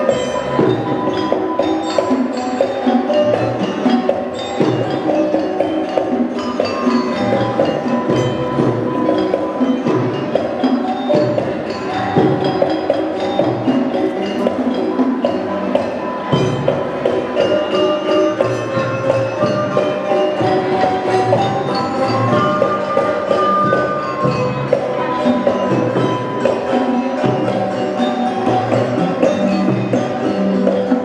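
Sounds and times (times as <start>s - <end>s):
metal mallet instruments ringing: 0.0s - 31.0s.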